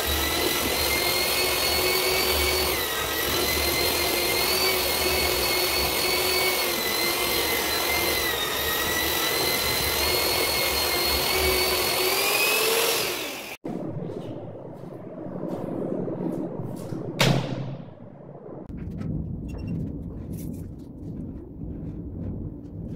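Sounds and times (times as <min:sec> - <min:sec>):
electric paddle mixer whining: 0:00.0 - 0:13.6.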